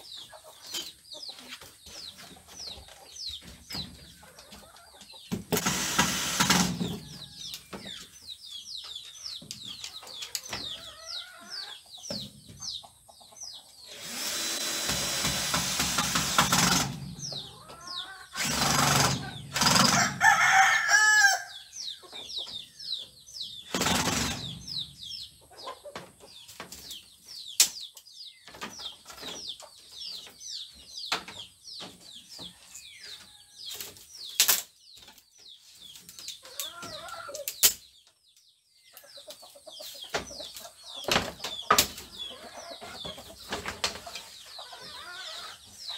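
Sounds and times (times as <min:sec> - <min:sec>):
chickens chirping: 0:00.0 - 0:45.9
power drill running: 0:05.6 - 0:06.7, 0:13.9 - 0:16.9, 0:18.4 - 0:20.0
rooster crowing: 0:20.0 - 0:21.6.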